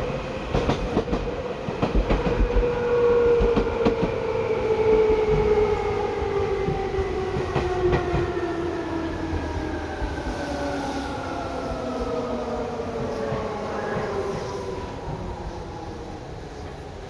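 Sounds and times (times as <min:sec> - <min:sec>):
rail clicks: 0:00.0 - 0:04.4
train rumble: 0:00.0 - 0:17.0.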